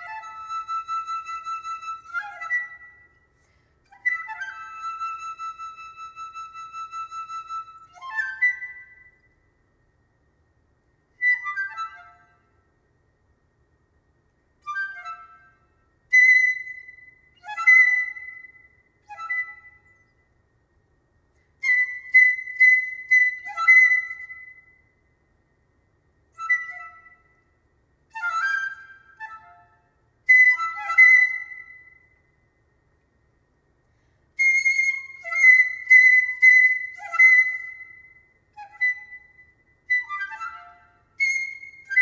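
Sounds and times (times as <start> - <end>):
solo piccolo playing: 0.0 - 9.4, 11.2 - 12.6, 14.6 - 20.1, 21.6 - 24.9, 26.3 - 32.3, 34.4 - 42.0.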